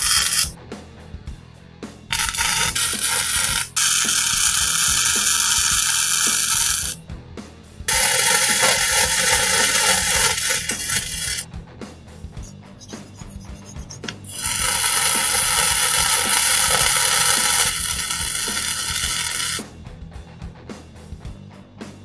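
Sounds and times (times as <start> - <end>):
arc welding sizzle: 0.0 - 0.6, 2.1 - 7.0, 7.9 - 11.5, 13.9 - 19.6.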